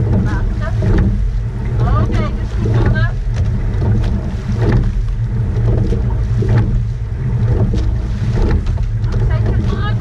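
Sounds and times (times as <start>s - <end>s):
rowing gear knocking: 0.0s - 10.0s
wind rumbling on microphone: 0.0s - 10.0s.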